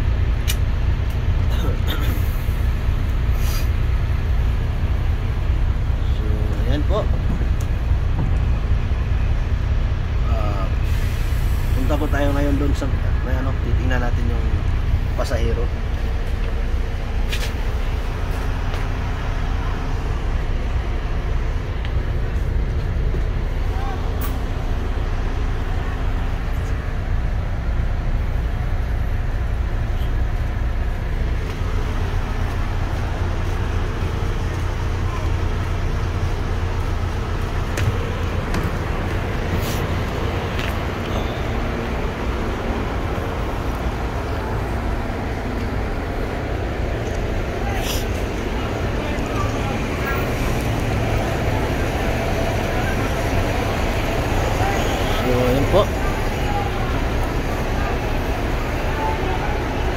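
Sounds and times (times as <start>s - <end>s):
bus engine rumbling: 0.0s - 59.9s
brief hiss: 3.4s - 3.7s.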